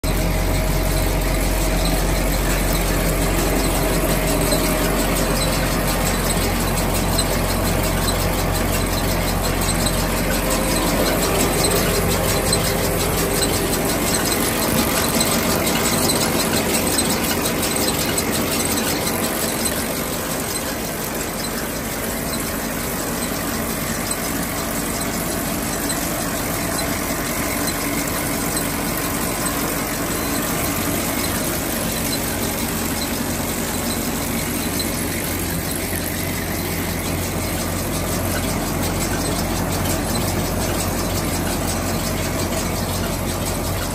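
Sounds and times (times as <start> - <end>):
machinery running: 0.0 - 43.9.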